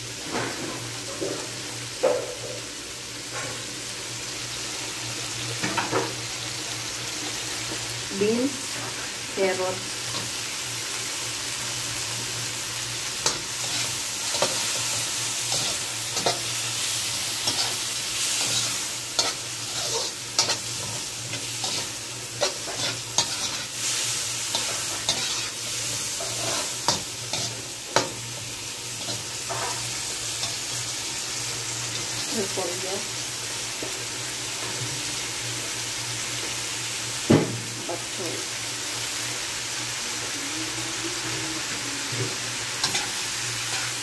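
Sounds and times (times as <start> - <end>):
food sizzling in a wok: 0.0 - 44.0
metal spatula scraping a pan: 13.2 - 16.6, 17.2 - 28.2, 29.0 - 30.6, 42.8 - 44.0.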